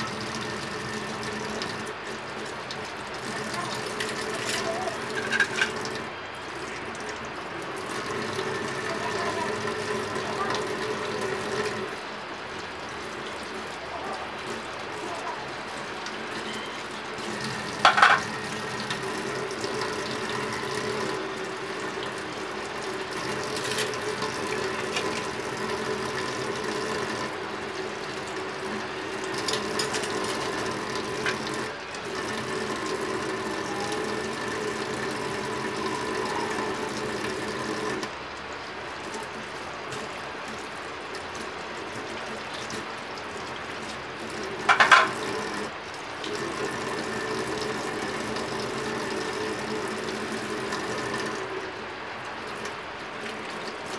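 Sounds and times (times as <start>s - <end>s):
tap water running into sink: 0.0s - 53.9s
crockery clinking: 3.6s - 6.0s, 17.8s - 18.4s.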